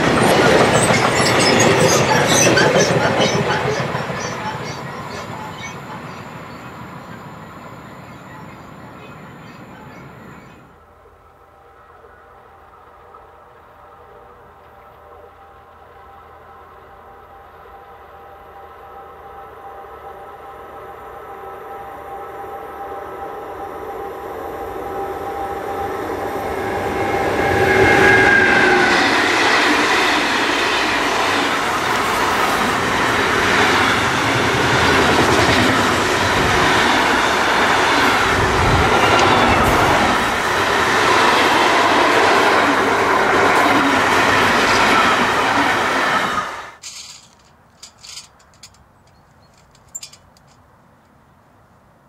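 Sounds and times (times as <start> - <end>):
freight wagons rumbling: 0.0 - 7.3, 46.8 - 50.6
electric locomotive whine: 0.0 - 50.5.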